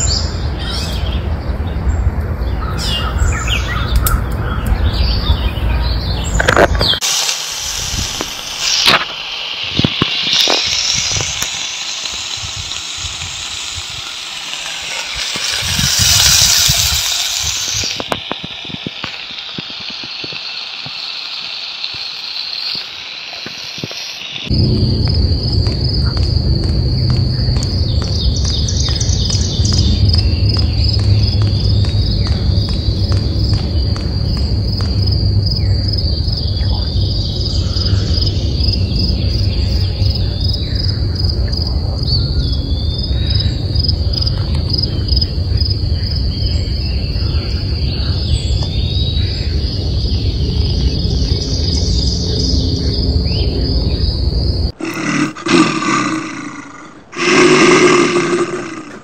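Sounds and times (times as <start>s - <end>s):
crickets chirping: 0.0s - 59.0s
fire hissing in camp stove: 6.9s - 30.6s
low rumble: 24.5s - 55.4s.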